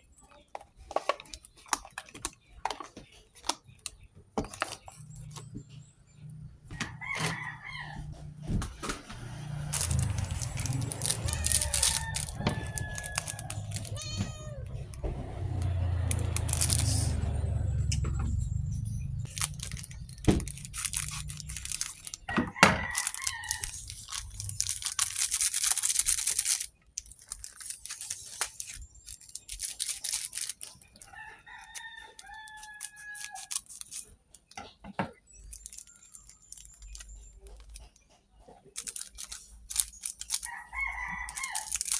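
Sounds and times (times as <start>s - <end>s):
rooster crowing: 6.7s - 8.4s, 9.6s - 17.2s, 22.3s - 23.8s, 31.0s - 33.6s, 40.4s - 41.7s
foil sachets crinkling: 9.4s - 14.6s, 15.4s - 17.2s, 19.2s - 34.2s, 35.4s - 37.9s, 38.7s - 41.9s.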